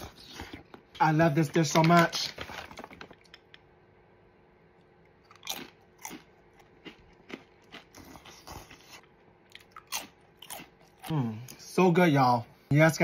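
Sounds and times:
cracker crunching: 5.0 - 11.1.

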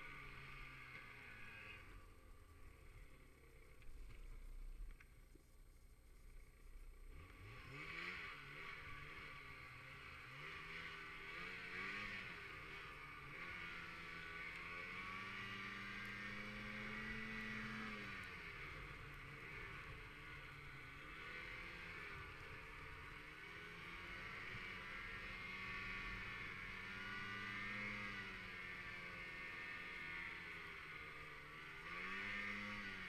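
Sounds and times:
snowmobile engine revving: 7.2 - 33.0.

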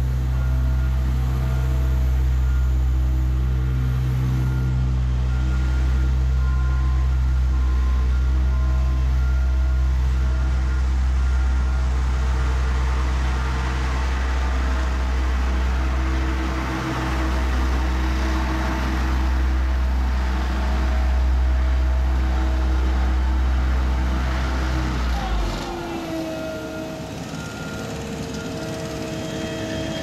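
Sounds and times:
diesel engine humming: 0.0 - 30.0
paving machine mechanical noise: 0.0 - 30.0.

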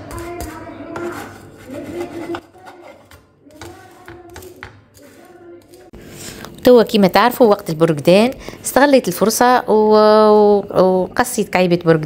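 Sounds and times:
spatula tapping and scraping pan: 0.0 - 5.8.

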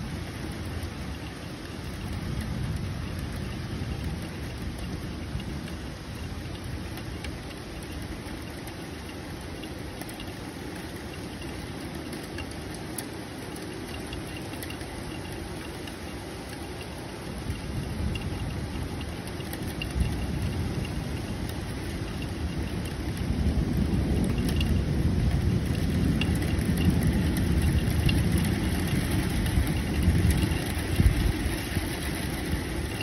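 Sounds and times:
low thunder rumble: 0.0 - 10.0, 17.3 - 33.0
steady rain: 0.0 - 33.0
drops ticking nearby: 0.2 - 33.0.

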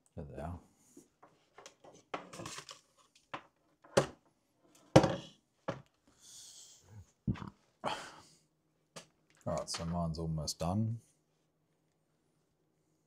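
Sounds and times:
small knocks and clatters: 1.0 - 6.0.

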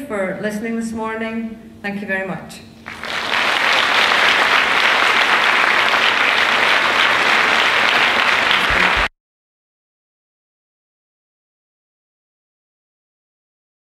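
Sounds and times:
audience applauding: 2.9 - 9.1.

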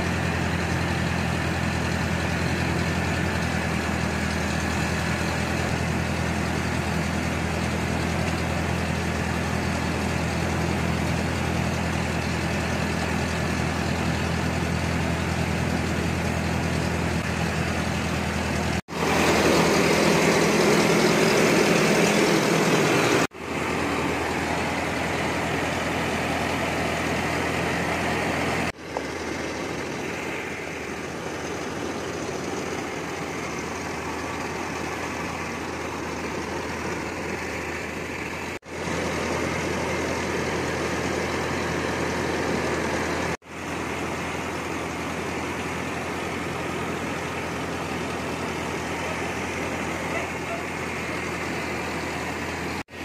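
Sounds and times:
engine drone: 0.0 - 53.0
loud whirring rush of rice: 18.4 - 53.0.

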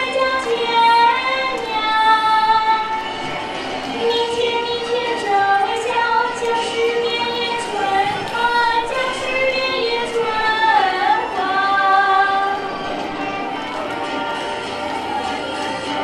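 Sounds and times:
girl singing: 0.0 - 3.1, 3.9 - 12.7.

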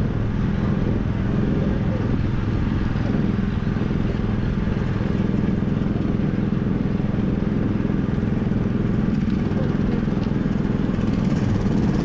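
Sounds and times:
small petrol engine running: 0.0 - 12.0.

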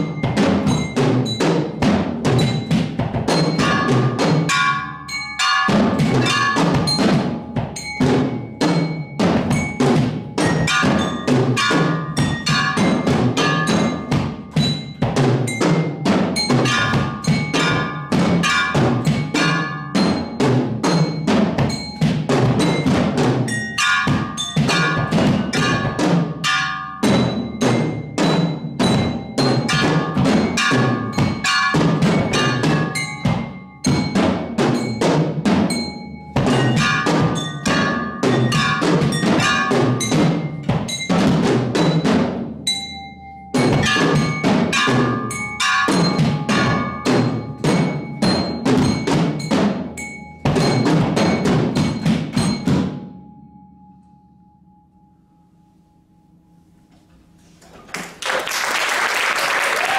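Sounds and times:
drums playing fast strokes: 0.0 - 42.5, 43.6 - 53.0
bell-like tones: 0.0 - 56.8.

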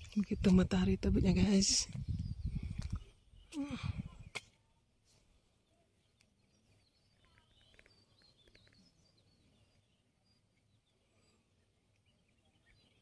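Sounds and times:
faint bird chirps: 5.4 - 13.0.

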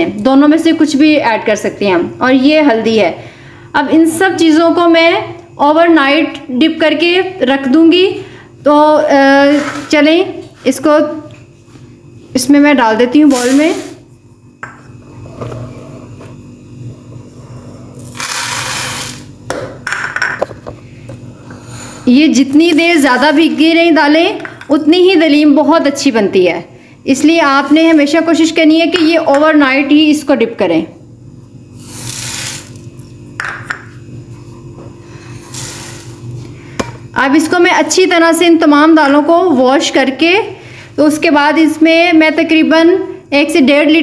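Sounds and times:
bowls knocking: 19.5 - 20.8, 24.4 - 24.8, 33.4 - 33.9.

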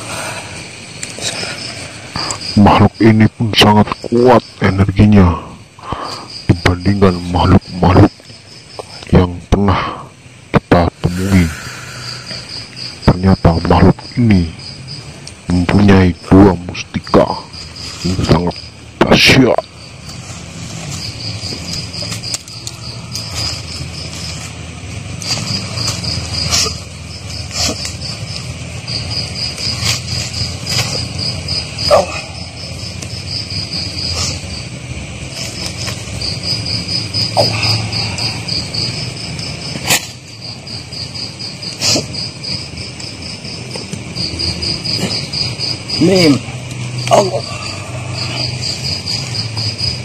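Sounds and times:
crickets chirping: 0.0 - 50.0
rustles: 10.2 - 50.0.

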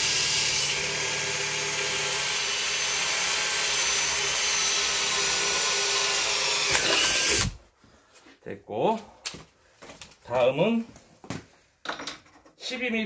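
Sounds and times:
power drill drilling: 0.0 - 7.6.

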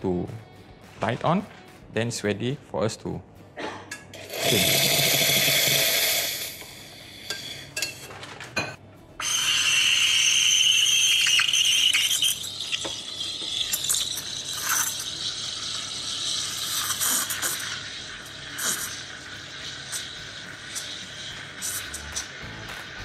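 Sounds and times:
steam wand hissing: 4.2 - 7.7, 13.6 - 23.0.

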